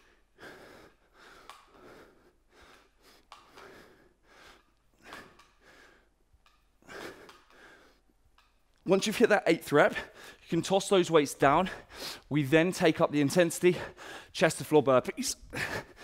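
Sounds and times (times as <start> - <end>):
man breathing hard: 0.0 - 8.2, 9.9 - 10.5, 11.6 - 12.3, 13.7 - 14.4, 15.5 - 16.0.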